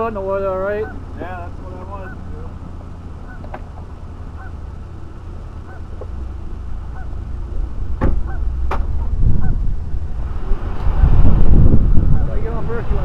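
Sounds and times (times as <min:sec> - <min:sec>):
steady low rumble: 0:00.0 - 0:13.0
geese honking: 0:00.3 - 0:04.8, 0:05.5 - 0:07.4, 0:08.0 - 0:08.6, 0:09.3 - 0:09.6
sharp knocks: 0:08.0 - 0:09.2.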